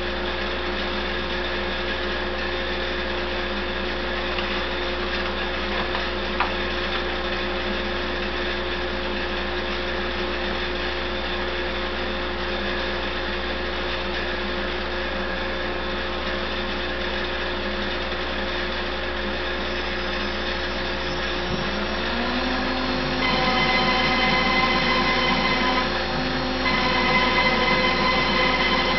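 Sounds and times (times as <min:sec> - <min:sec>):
router motor high whine: 0:18.7 - 0:28.9
rising tone: 0:20.9 - 0:28.9.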